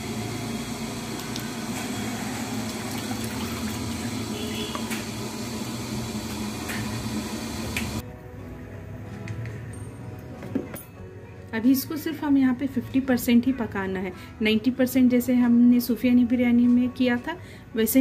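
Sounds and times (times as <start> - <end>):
water boiling in a pot: 0.0 - 8.0.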